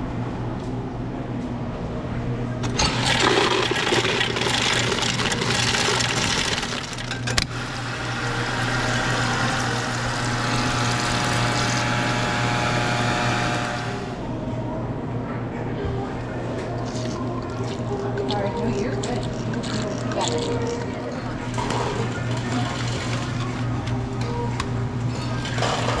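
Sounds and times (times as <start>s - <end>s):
soda pouring into cup of ice: 2.7s - 7.3s.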